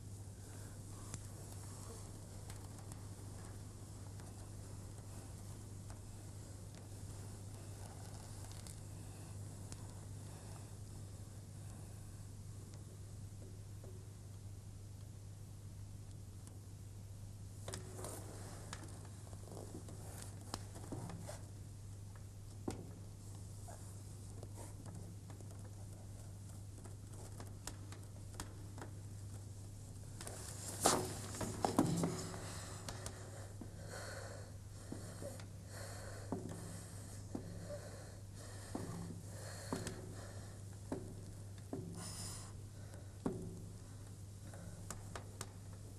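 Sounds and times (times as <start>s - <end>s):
steady low hum: 0.0s - 45.9s
slow regular breathing: 0.3s - 13.0s, 30.2s - 45.8s
faint rustling: 23.2s - 40.5s.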